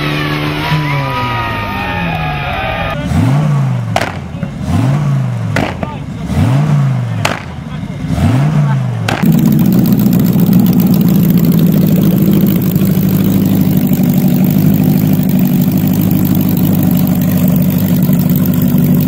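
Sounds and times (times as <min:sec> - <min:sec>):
motorcycle engine idling: 0:09.0 - 0:19.0.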